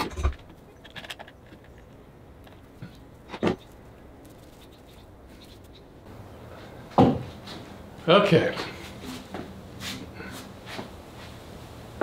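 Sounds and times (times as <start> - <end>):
rope rustling and ticking: 0.5 - 5.9.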